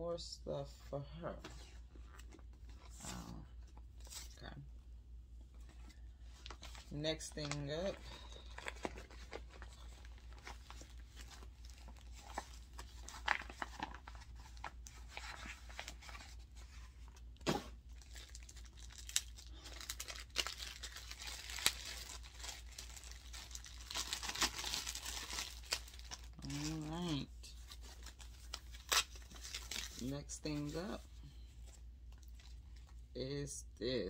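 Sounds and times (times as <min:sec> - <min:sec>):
plastic bag crinkling and tearing: 0:06.4 - 0:16.3, 0:17.4 - 0:30.7.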